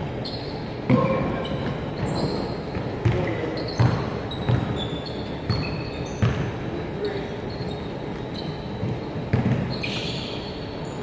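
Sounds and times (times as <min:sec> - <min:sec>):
sneaker squeaks: 0:00.1 - 0:11.0
basketball bouncing on wooden floor: 0:00.9 - 0:04.9, 0:05.5 - 0:06.5, 0:08.8 - 0:09.8.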